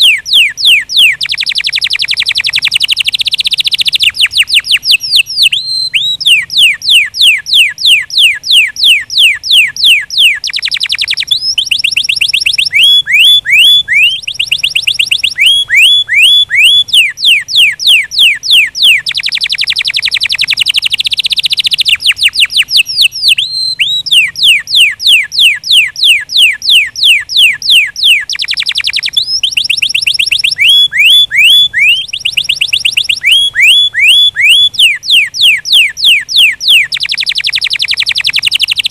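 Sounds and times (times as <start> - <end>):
canary singing trills: 0.0 - 38.9.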